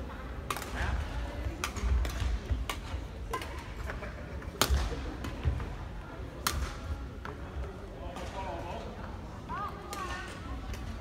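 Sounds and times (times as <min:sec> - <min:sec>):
rackets hitting shuttlecock: 0:00.4 - 0:05.7, 0:06.3 - 0:07.4.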